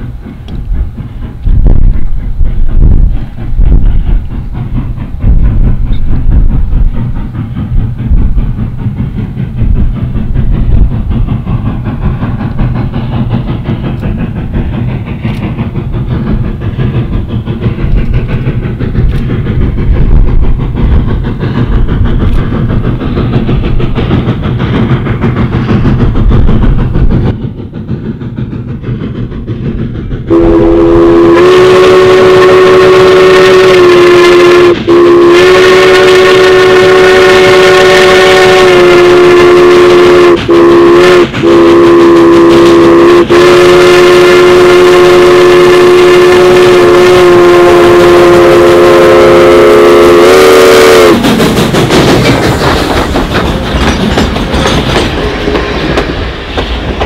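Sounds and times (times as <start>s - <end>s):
low rumble: 0.1s - 31.1s
steam whistle blast: 30.3s - 51.2s.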